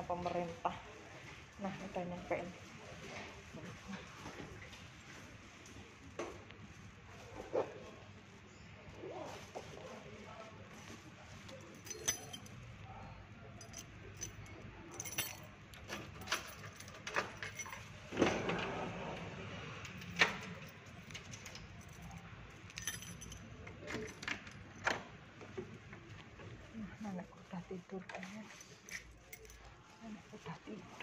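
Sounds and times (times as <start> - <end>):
keys jangling: 11.6 - 12.6, 13.6 - 18.0, 19.9 - 24.6, 28.5 - 29.8.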